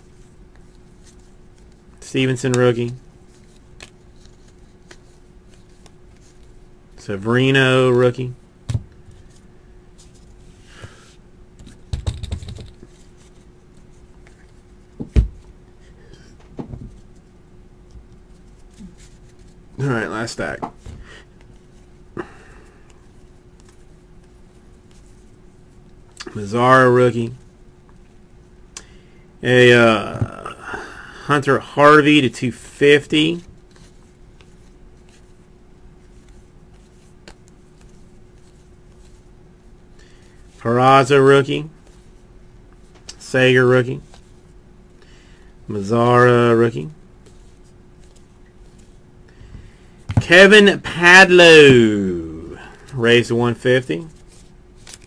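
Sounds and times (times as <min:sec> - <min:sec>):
faint steady hum: 0:00.0 - 0:55.0
cards rustling and ticking: 0:00.1 - 0:06.7, 0:11.6 - 0:15.0, 0:17.9 - 0:26.3, 0:32.7 - 0:39.3, 0:44.0 - 0:55.0
cards clicking and rustling: 0:00.6 - 0:06.5, 0:51.7 - 0:55.0.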